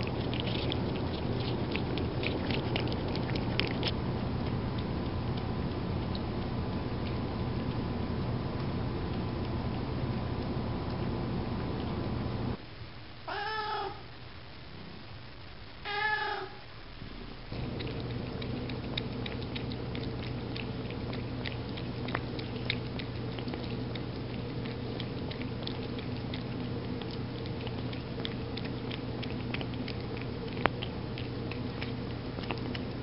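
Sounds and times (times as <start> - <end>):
cat chewing and licking food: 0.0 - 12.6, 17.0 - 33.0
steady low hum: 0.0 - 33.0
cat meowing: 13.3 - 14.1, 15.8 - 16.6.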